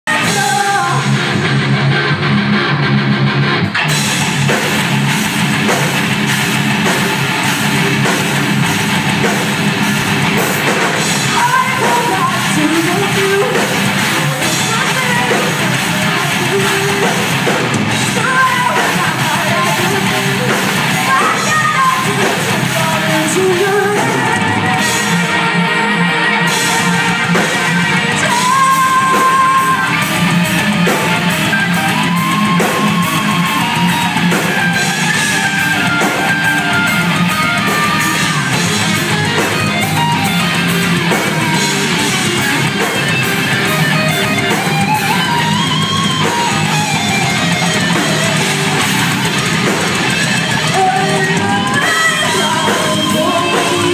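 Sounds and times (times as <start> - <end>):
rock band playing: 0.0 - 53.9
woman singing: 0.1 - 1.2, 11.2 - 17.4, 18.1 - 26.8, 28.1 - 30.0, 50.6 - 53.9.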